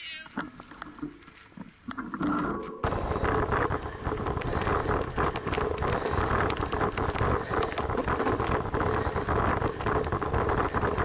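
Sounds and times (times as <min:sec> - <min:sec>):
wind rumbling on microphone: 0:02.2 - 0:11.0
bicycle tyres crunching on gravel: 0:02.7 - 0:11.0.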